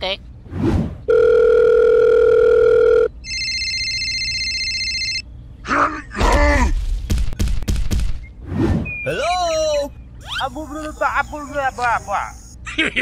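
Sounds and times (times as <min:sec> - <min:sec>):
electronic ringing tone: 0:01.1 - 0:05.2
telephone dial tone: 0:01.1 - 0:05.2
cartoon voice grunting and groaning: 0:05.6 - 0:06.8.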